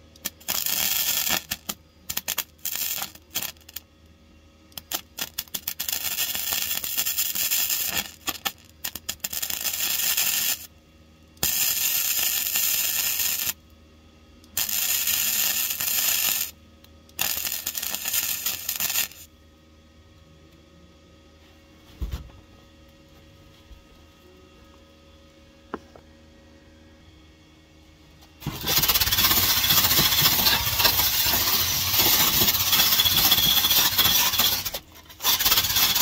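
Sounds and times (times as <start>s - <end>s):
welder crackling: 0.1s - 3.8s, 4.7s - 10.7s, 11.4s - 13.6s, 14.5s - 19.3s, 28.4s - 36.0s.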